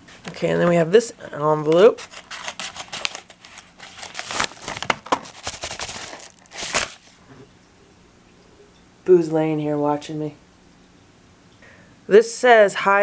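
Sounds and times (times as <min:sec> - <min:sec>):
paper crinkling and rustling: 0:01.6 - 0:07.2
scissors cutting paper: 0:01.8 - 0:06.9.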